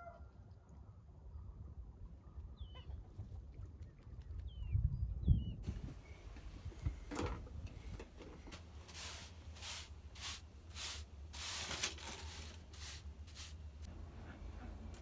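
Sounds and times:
broom sweeping concrete floor: 8.5 - 13.9.

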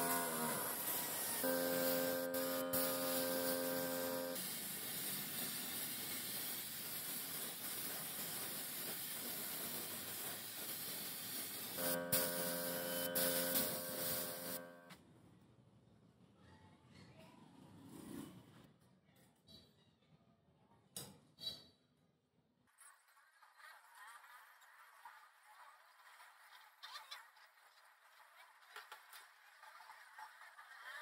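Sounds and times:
electric hum: 0.0 - 4.4, 11.8 - 14.9
paint spray gun hissing: 0.0 - 14.8.

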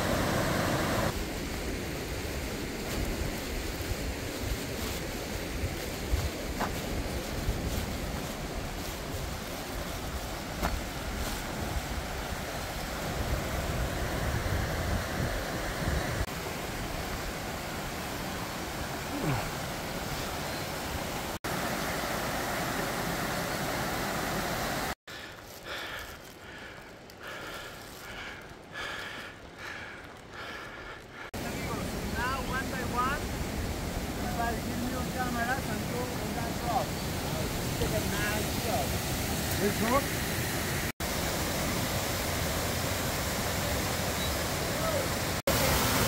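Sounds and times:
mountain river rushing: 0.0 - 46.0
wind rumble on microphone: 2.4 - 16.3.

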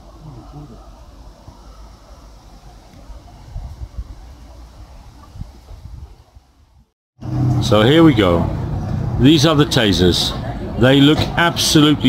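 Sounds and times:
faint steady hiss: 0.0 - 6.9.

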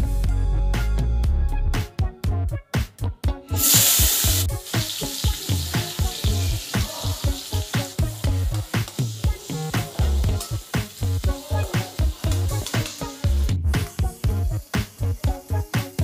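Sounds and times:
background music with steady beat: 0.0 - 16.0
vegetables sizzling in hot oil: 3.5 - 16.0.

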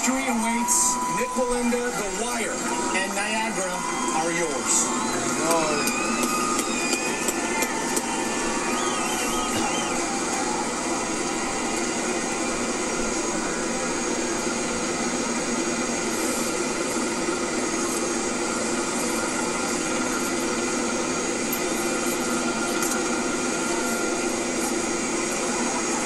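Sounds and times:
faint steady tones: 0.0 - 26.0.

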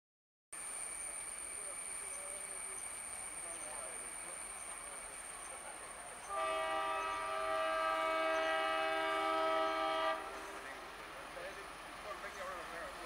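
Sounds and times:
train horn blast: 6.3 - 10.7.

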